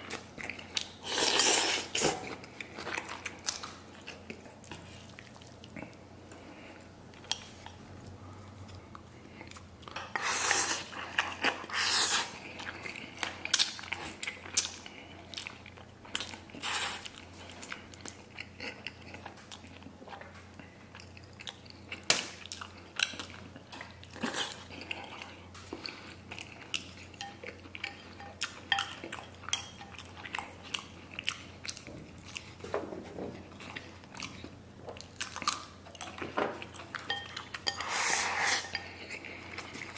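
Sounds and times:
wet chewing and slurping: 8.6s - 32.6s, 33.4s - 39.9s.

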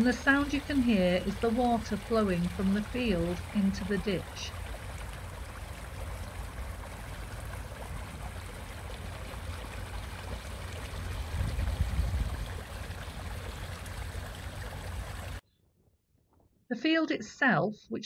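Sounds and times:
rushing flowing water: 0.0s - 15.4s
low rumble: 2.2s - 14.3s.

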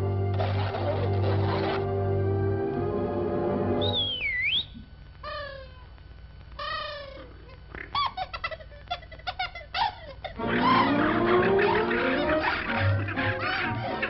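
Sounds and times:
whistle dipping and rising: 3.8s - 4.8s
cartoon crow cawing: 10.4s - 14.0s.

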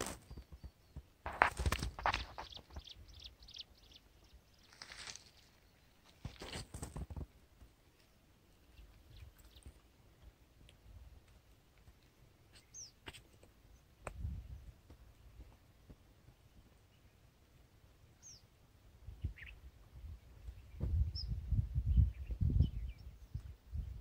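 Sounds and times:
bird chirp: 0.1s - 6.2s, 7.9s - 9.8s, 12.1s - 14.7s, 18.1s - 18.5s, 19.1s - 24.0s.

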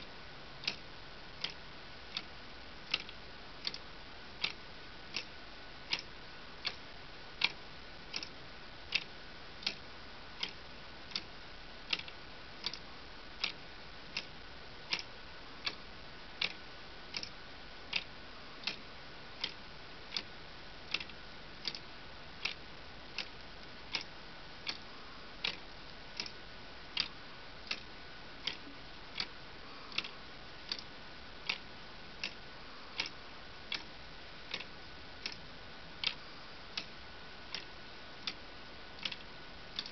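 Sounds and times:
plastic clock escapement ticking: 2.9s - 3.8s, 4.4s - 5.3s, 5.9s - 6.8s, 7.4s - 8.3s, 11.9s - 12.8s, 14.9s - 15.8s, 16.4s - 17.3s, 20.9s - 21.8s, 26.2s - 26.4s, 27.0s - 27.8s, 29.9s - 30.1s, 30.7s - 31.6s, 33.0s - 33.9s, 39.0s - 39.2s.

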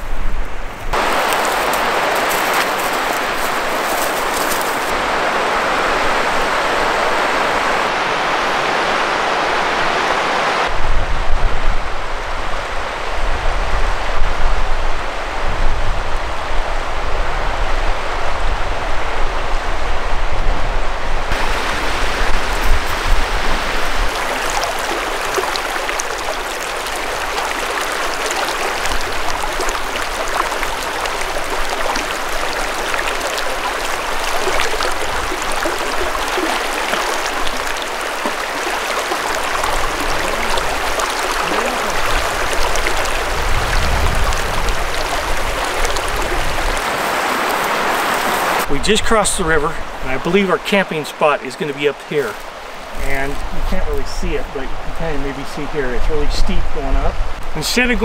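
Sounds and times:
river rushing over rapids: 0.9s - 20.3s, 20.9s - 53.8s
low gusty rumble: 39.3s - 46.9s.

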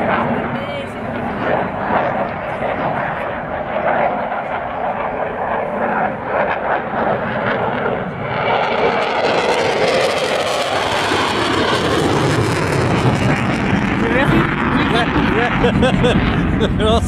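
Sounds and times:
jet fly-by roar: 0.0s - 17.0s.

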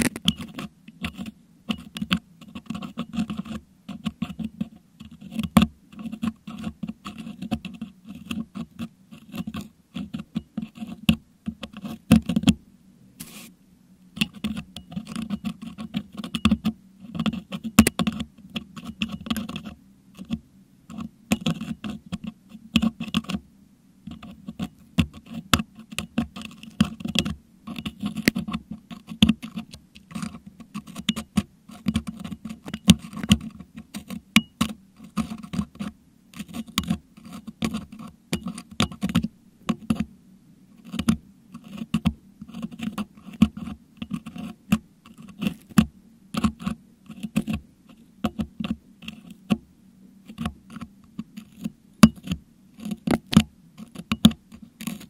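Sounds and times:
metal hook scraping microphone grille: 0.0s - 12.5s, 14.2s - 23.4s, 24.1s - 40.1s, 40.8s - 45.8s, 50.2s - 55.0s.

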